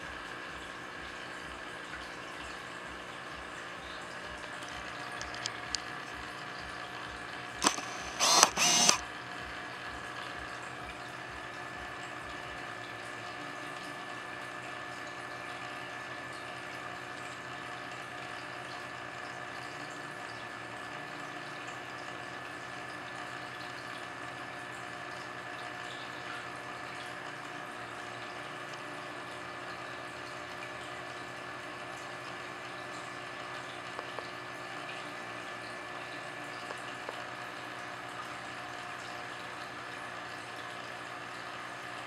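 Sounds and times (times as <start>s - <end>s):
aquarium equipment hum: 0.0s - 42.0s
lens autofocus whirring: 4.6s - 6.0s, 7.5s - 9.0s
camera autofocus click: 7.6s - 9.0s.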